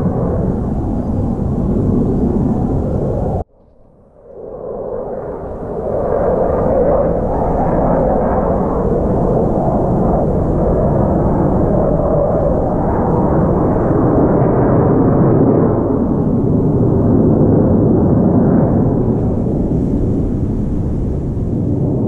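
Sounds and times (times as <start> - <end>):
jet aircraft flying over: 0.0 - 22.0.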